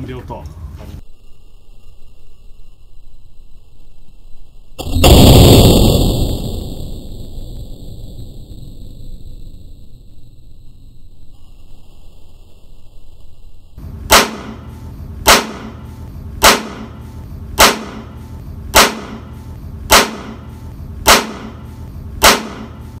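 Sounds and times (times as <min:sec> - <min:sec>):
sharp cracks: 0:04.8 - 0:11.3, 0:14.1 - 0:23.0.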